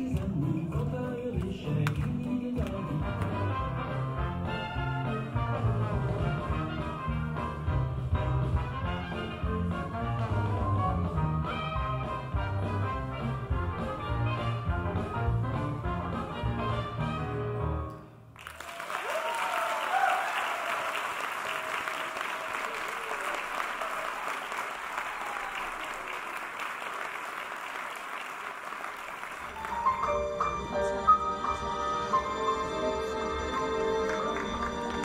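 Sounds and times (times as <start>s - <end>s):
audience applause: 18.4s - 30.3s, 33.3s - 35.0s.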